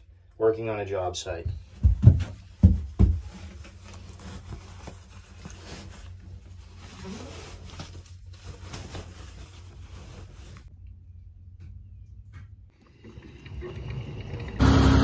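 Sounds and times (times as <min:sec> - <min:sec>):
heavy thumps: 0:01.5 - 0:03.4
clothes rustling: 0:01.8 - 0:10.7.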